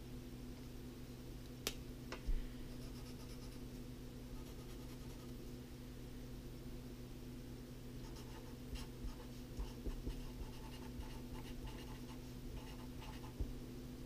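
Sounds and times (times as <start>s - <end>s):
steady low hum: 0.0s - 14.0s
marker scratching on paper: 4.4s - 5.3s, 8.0s - 13.4s.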